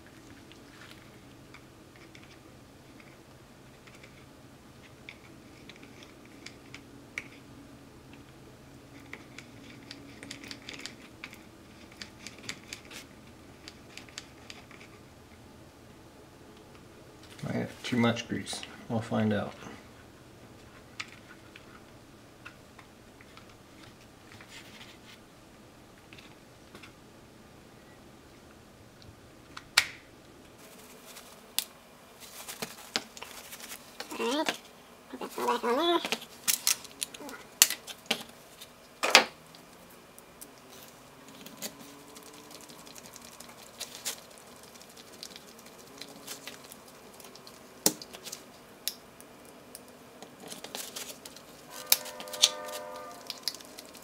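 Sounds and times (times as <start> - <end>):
handling noise and rustling: 30.5 - 48.6, 50.2 - 54.0.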